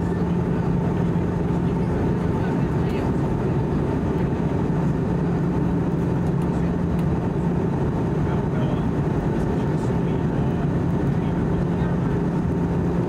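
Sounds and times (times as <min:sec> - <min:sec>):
airflow rush in aircraft cabin: 0:00.0 - 0:13.0
constant low hum: 0:00.0 - 0:13.0
engine noise: 0:00.0 - 0:13.0.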